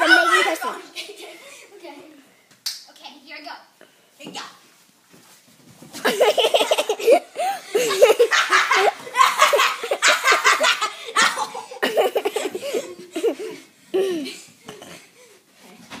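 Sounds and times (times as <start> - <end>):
high-pitched laughter: 6.0 - 14.3.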